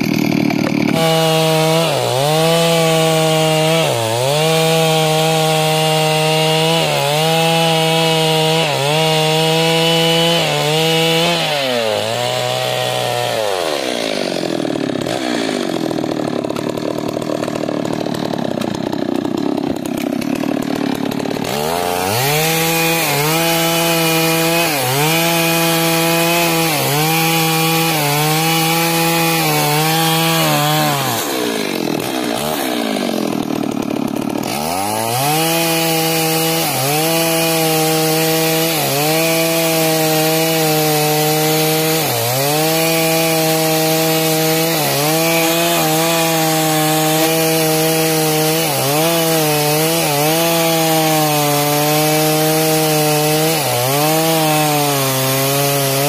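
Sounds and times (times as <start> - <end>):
chainsaw cutting wood: 0.0 - 56.0.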